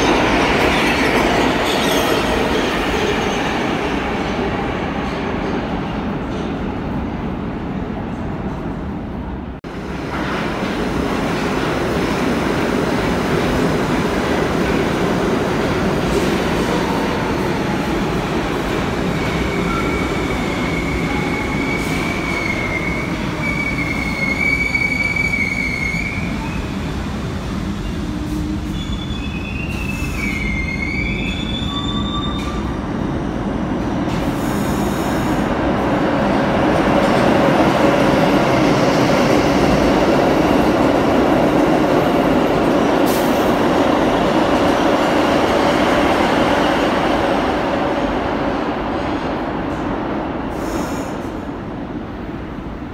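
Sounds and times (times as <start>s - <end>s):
train wheel squeal: 0.7s - 3.6s, 19.2s - 27.0s, 27.8s - 32.7s.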